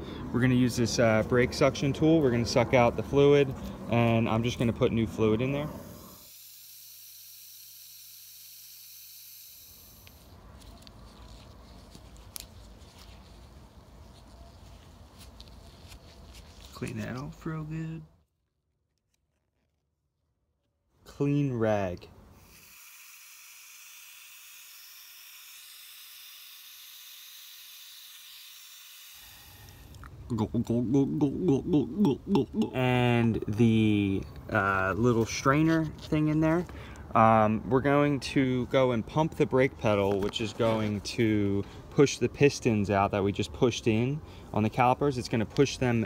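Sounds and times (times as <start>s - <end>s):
suction tool hissing: 5.8s - 10.3s, 22.4s - 30.0s.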